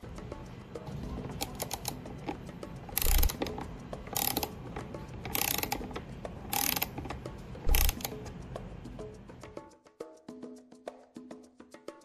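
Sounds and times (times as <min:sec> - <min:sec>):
ratchet wrench clicking: 0:01.3 - 0:08.3.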